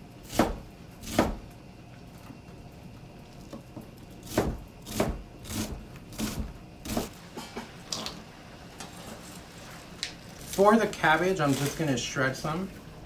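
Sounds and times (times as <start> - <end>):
knife chopping on cutting board: 0.2 - 1.4, 4.2 - 7.2.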